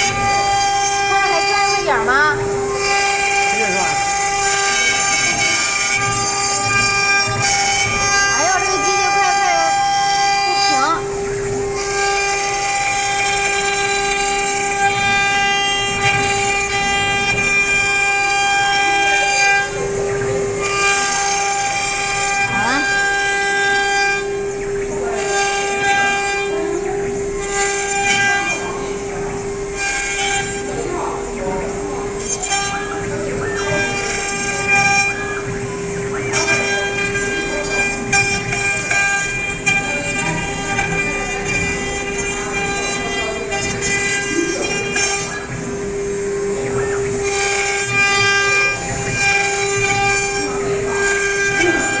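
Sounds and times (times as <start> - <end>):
bits cutting wood hissing: 0.0 - 31.1, 31.8 - 52.0
router spindles whining: 0.0 - 52.0.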